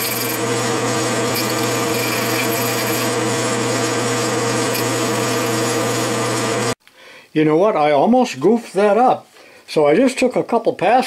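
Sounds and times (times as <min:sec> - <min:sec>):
hiss from lathe cutting: 0:00.0 - 0:06.8
metal lathe machine hum: 0:00.0 - 0:06.8.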